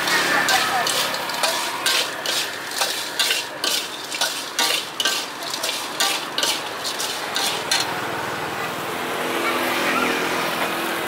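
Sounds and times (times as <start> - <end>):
utensil scraping pan: 0.0 - 8.0
frying sizzle: 0.0 - 8.1.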